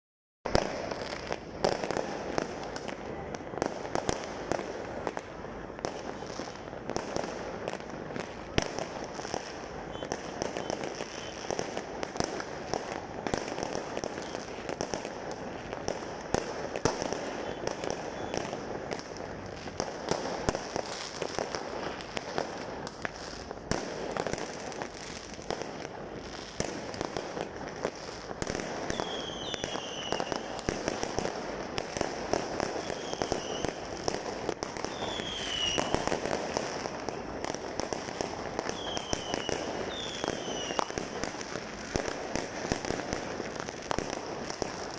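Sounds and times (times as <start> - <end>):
fireworks crackling and banging: 0.5 - 44.9
falling firework whistles: 8.5 - 11.8, 14.0 - 14.7, 16.8 - 18.6, 28.8 - 31.1, 32.6 - 34.2, 34.8 - 37.2, 38.1 - 42.8.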